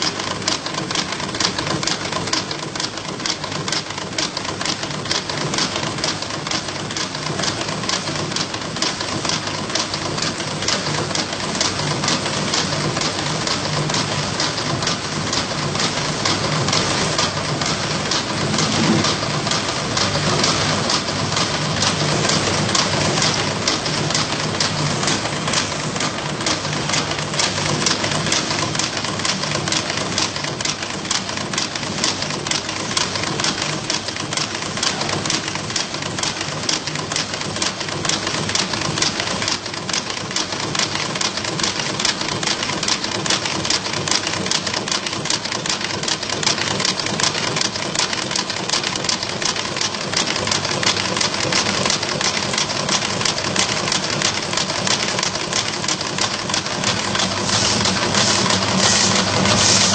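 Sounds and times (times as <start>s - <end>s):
machine metallic clatter: 0.0s - 59.9s.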